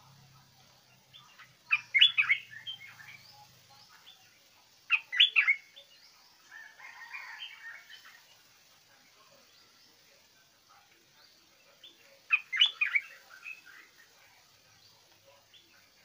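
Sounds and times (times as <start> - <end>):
bird chattering: 1.1 - 4.2, 4.8 - 6.0, 11.8 - 14.0.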